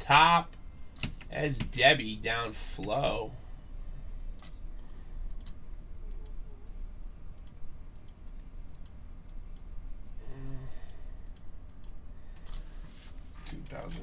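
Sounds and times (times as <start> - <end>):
steady low hum: 0.0 - 14.0
computer mouse and keyboard clicks: 1.0 - 1.7, 4.4 - 4.6, 5.3 - 6.4.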